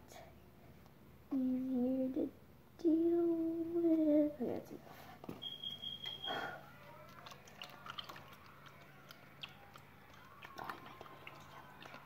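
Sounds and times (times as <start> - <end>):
small liquid sounds: 7.0 - 12.0.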